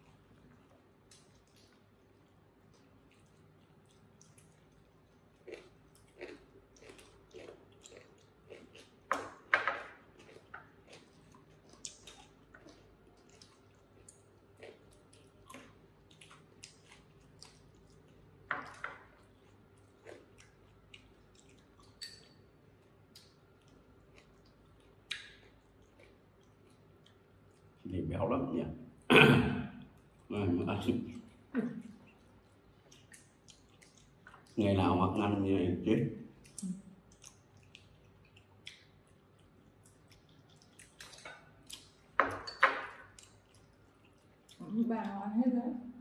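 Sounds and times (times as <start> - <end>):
people chewing food: 0.0 - 28.3, 29.7 - 45.3
dishes clattering: 42.2 - 43.0.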